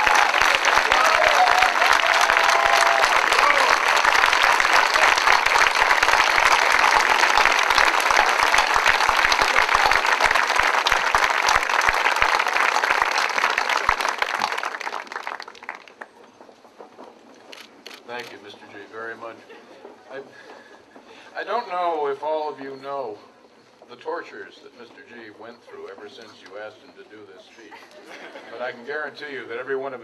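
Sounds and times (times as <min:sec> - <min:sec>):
crowd applauding: 0:00.0 - 0:16.4.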